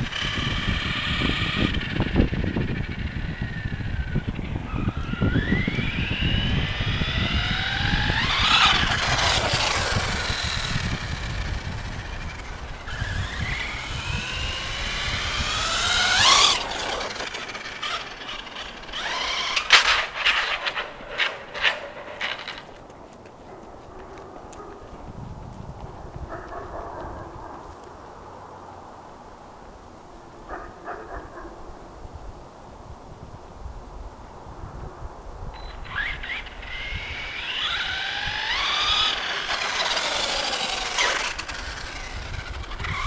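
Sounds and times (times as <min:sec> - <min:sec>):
electric motor whining: 0:00.0 - 0:22.7, 0:35.6 - 0:43.0
tires rumbling on pavement: 0:00.0 - 0:28.8, 0:35.8 - 0:43.0.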